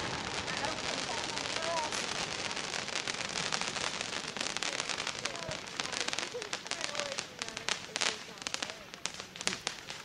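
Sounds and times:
firework crackling pops: 0.0s - 10.0s.

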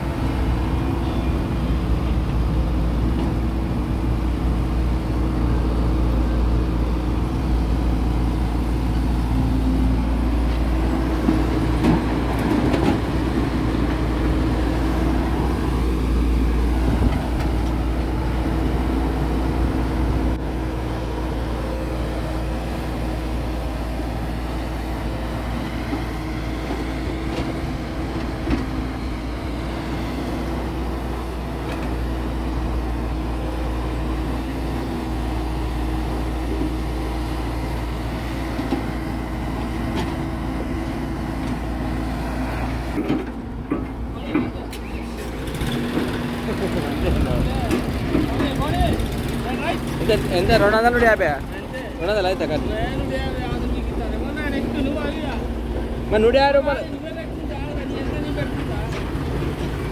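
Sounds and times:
excavator diesel engine running: 0.0s - 59.9s
tractor engines running: 0.0s - 59.9s.

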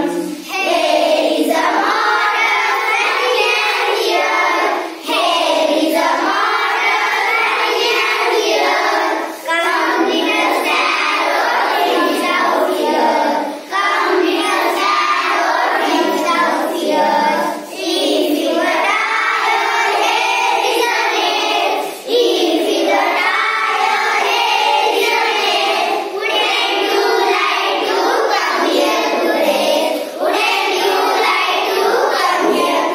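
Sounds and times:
children chanting in unison: 0.0s - 32.9s.

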